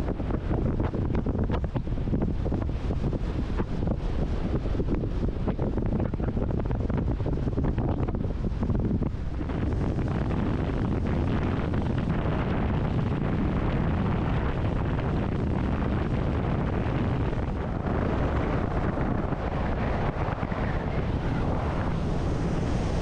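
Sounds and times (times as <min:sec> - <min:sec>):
water noise: 0:00.0 - 0:23.0
wind buffeting the microphone: 0:00.0 - 0:23.0
boat engine: 0:08.8 - 0:23.0.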